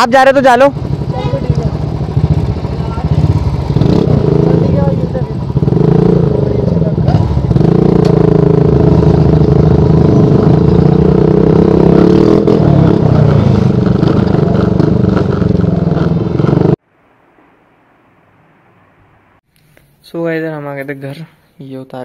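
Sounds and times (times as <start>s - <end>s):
motorcycle engine running: 0.0s - 16.8s.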